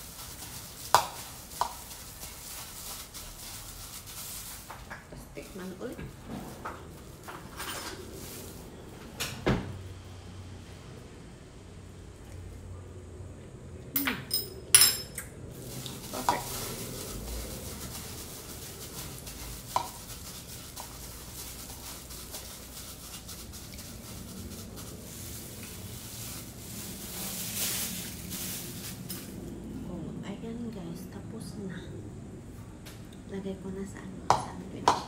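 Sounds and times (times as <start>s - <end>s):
plastic glove rustling: 0.0s - 8.9s, 15.5s - 29.6s.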